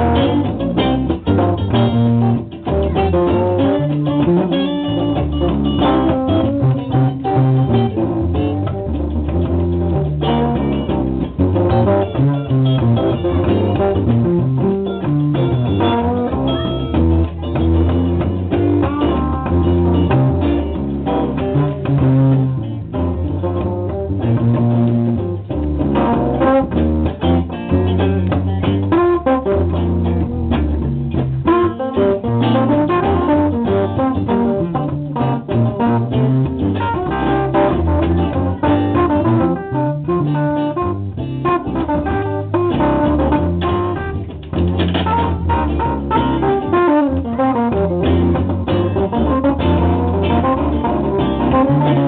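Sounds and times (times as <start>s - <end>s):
electric guitars jamming: 0.0s - 52.0s.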